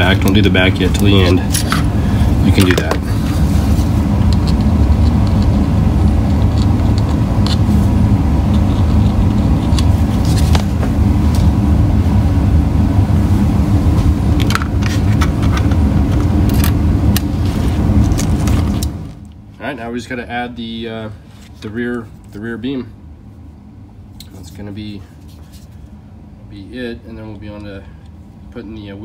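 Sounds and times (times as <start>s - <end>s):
steady low rumble: 0.0s - 29.0s.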